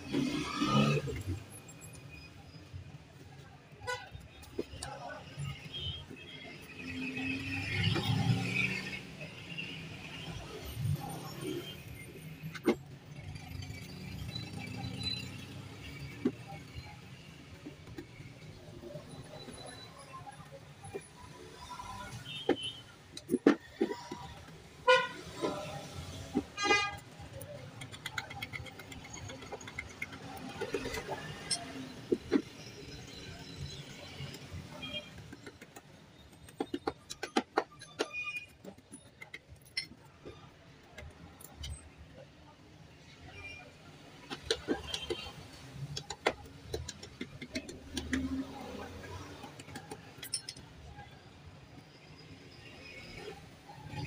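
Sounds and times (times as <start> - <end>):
hand tool tapping battery plates: 35.1 - 40.0, 44.2 - 48.5.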